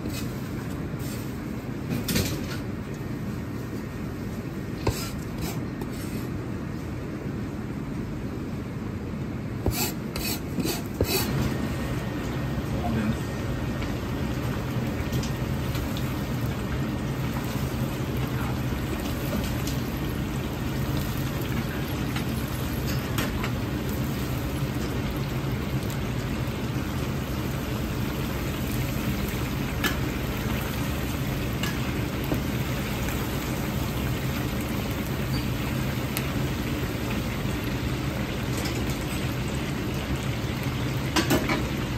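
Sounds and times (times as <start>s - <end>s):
oil bubbling and sizzling: 0.0s - 41.9s.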